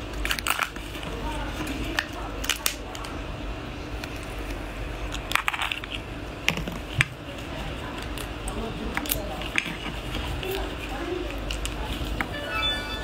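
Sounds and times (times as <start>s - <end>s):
crab shell cracking: 0.0s - 1.1s, 1.9s - 3.2s, 3.9s - 7.2s, 7.9s - 11.9s.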